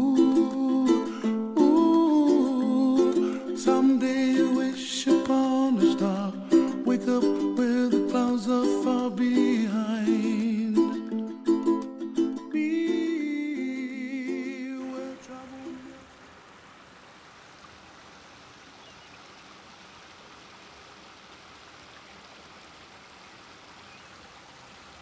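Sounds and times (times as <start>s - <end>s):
background music: 0.0s - 16.0s
fountain water splashing: 14.8s - 25.0s.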